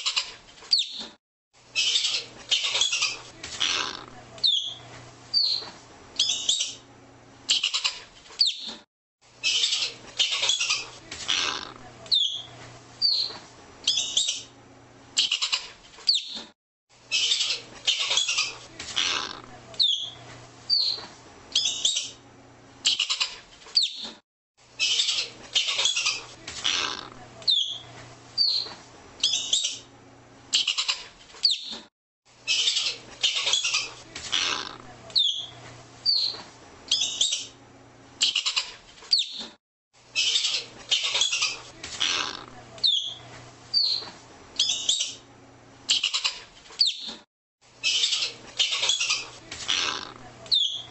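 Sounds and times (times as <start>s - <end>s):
squirrel chirping: 1.8s - 3.8s, 4.4s - 6.8s, 9.4s - 11.5s, 12.1s - 14.5s, 17.1s - 19.2s, 19.8s - 21.0s, 21.6s - 22.2s, 24.8s - 29.8s, 35.1s - 37.5s, 40.2s - 42.2s, 42.8s - 45.2s, 47.8s - 49.9s, 50.5s - 50.9s.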